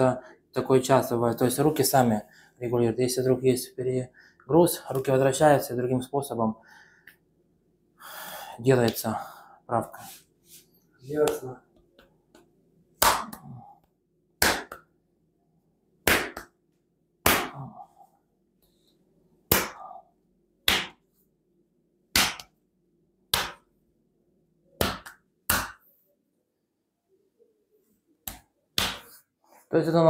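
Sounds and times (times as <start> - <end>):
hand smacking bare back: 13.0 - 13.4, 14.4 - 14.9, 16.0 - 16.6, 17.2 - 17.7, 19.5 - 19.9, 20.6 - 21.0, 22.1 - 22.6, 23.3 - 23.7, 24.8 - 25.9, 28.2 - 29.2.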